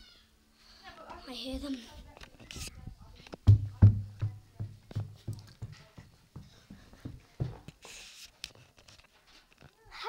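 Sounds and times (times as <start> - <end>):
footsteps thudding indoors: 3.0 - 7.9.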